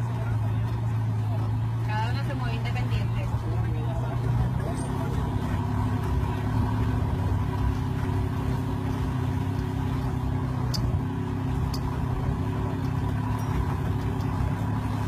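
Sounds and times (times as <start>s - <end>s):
truck engine running: 0.0s - 15.0s.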